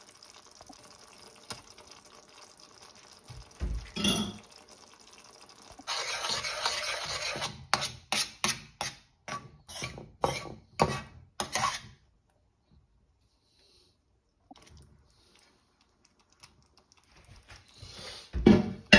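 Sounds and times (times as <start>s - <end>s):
metal spoon scraping a pan: 5.8s - 12.0s.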